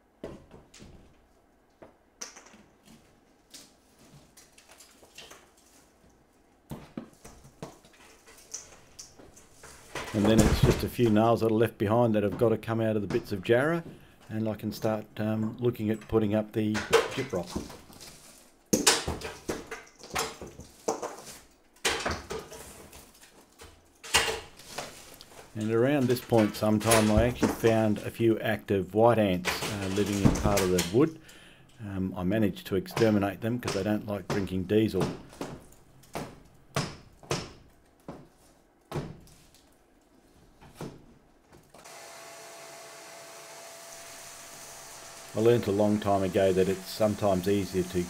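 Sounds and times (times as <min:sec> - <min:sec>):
vacuum cleaner hissing: 0:41.8 - 0:48.0.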